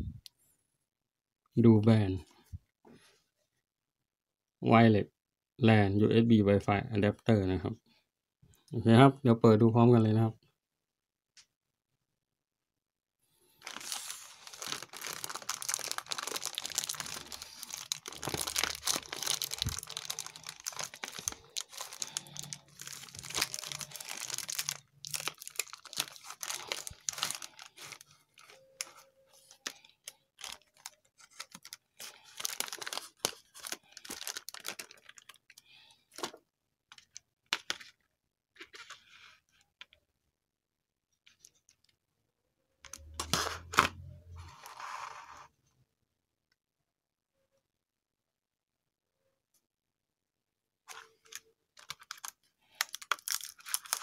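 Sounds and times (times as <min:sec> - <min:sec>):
plastic bag tearing and crinkling: 0:13.6 - 0:28.9, 0:30.4 - 0:35.6, 0:51.2 - 0:54.0
plastic blister pack crinkles: 0:13.6 - 0:37.9, 0:50.9 - 0:54.0.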